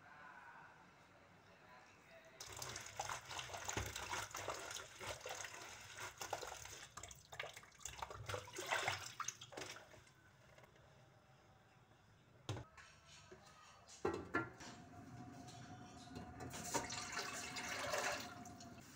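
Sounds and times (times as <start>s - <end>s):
water splashing in a basin: 2.4s - 10.1s, 16.5s - 18.7s.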